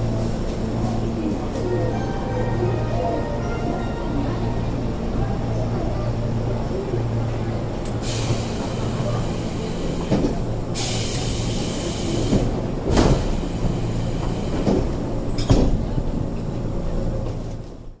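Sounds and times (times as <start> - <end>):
train equipment hum: 0.0 - 18.0
train doors closing knock: 12.2 - 16.1.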